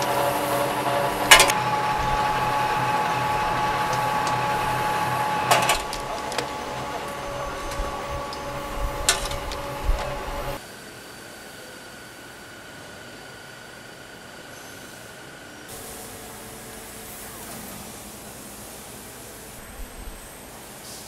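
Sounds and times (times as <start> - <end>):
sharp machine clacks: 0.0 - 10.6
machine hum and whine: 0.0 - 21.0.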